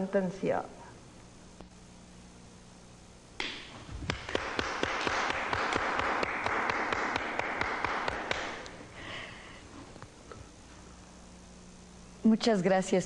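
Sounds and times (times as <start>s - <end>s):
audience applauding: 4.3s - 8.6s.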